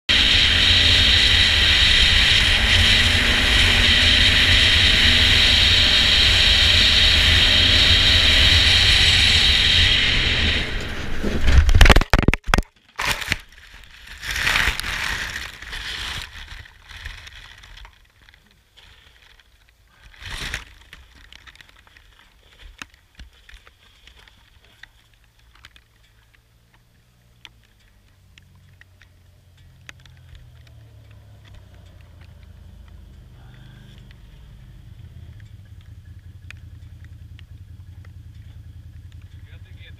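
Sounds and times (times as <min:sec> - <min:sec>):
quad bike engine: 0:00.0 - 0:18.2, 0:23.6 - 0:39.9
crash impacts and scraping: 0:00.1 - 0:18.1
rustling of brush: 0:12.9 - 0:26.5.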